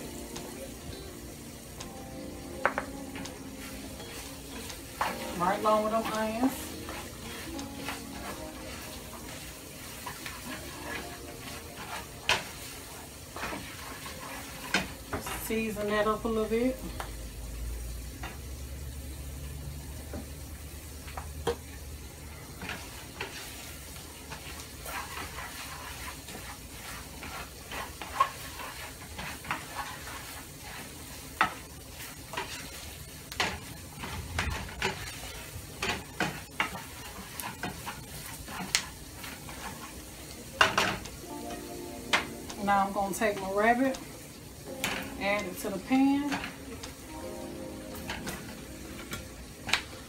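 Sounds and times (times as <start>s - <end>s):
vegetables sizzling in frying pan: 0.0s - 50.0s
spoon knocking against pan: 2.6s - 3.3s
spoon stirring and scraping: 2.7s - 15.5s, 22.5s - 41.1s.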